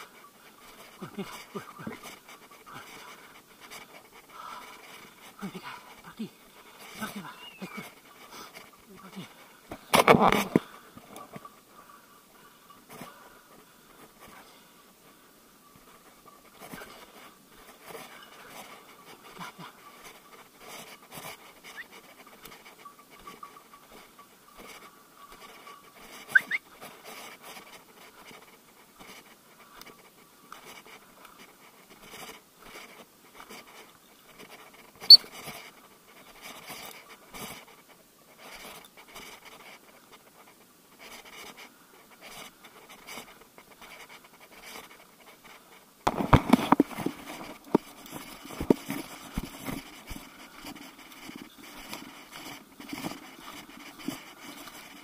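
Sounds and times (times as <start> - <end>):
sharp high chirp: 7.4 - 7.8, 26.3 - 26.6.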